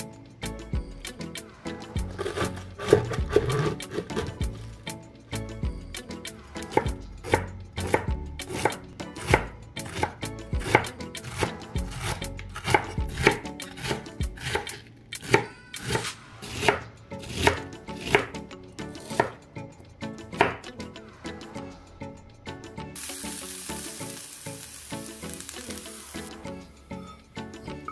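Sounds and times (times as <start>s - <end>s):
knife shredding cabbage: 2.1s - 4.4s.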